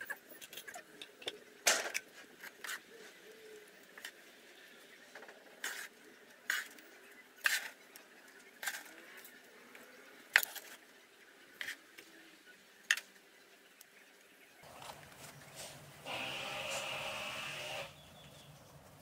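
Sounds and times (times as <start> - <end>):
trowel scraping and tapping sand: 5.2 - 10.8, 11.5 - 12.1.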